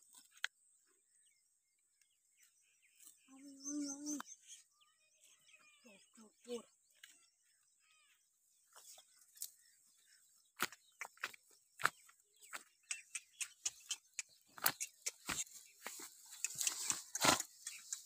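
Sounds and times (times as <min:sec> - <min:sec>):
leaves and twigs crackling: 0:08.7 - 0:09.7, 0:14.5 - 0:18.0.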